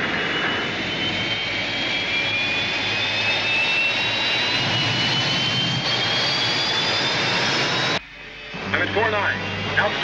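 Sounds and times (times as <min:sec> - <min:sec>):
spacecraft engine rush with whine: 0:00.0 - 0:10.0.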